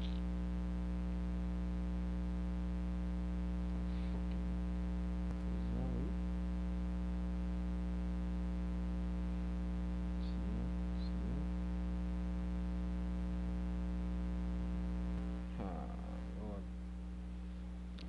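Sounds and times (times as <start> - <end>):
buzzy electrical hum: 0.0 - 18.0.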